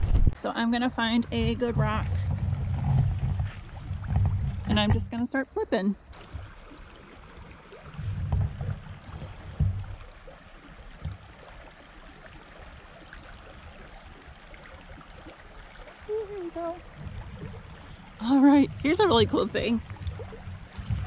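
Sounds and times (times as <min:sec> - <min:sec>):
creek water running over rocks: 0:00.8 - 0:05.3, 0:06.1 - 0:21.0
short low thumps: 0:01.0 - 0:05.2, 0:16.8 - 0:21.0.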